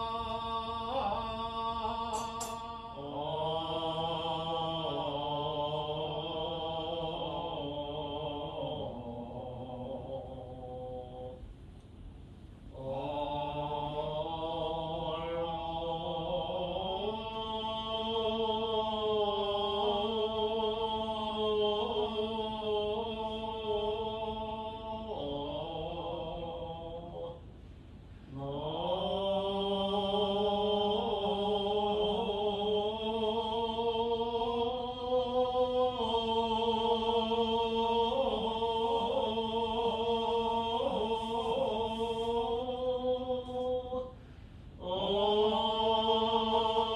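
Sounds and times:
man chanting sustained tones: 0:00.0 - 0:11.4, 0:12.8 - 0:27.4.

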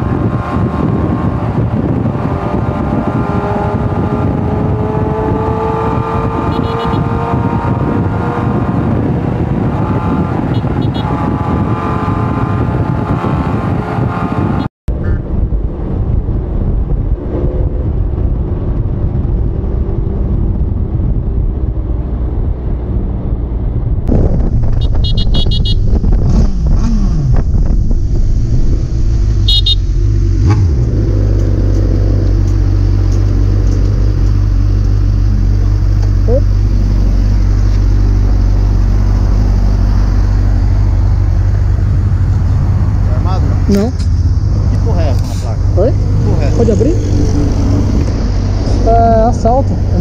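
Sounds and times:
wind rush: 0:00.0 - 0:50.0
motorcycle engine running: 0:24.4 - 0:50.0.

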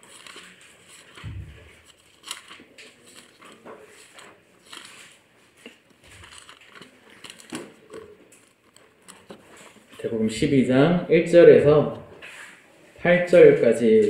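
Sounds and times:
paper pages rustling: 0:00.0 - 0:10.2, 0:12.2 - 0:12.6
soft low thump: 0:01.2 - 0:01.7.

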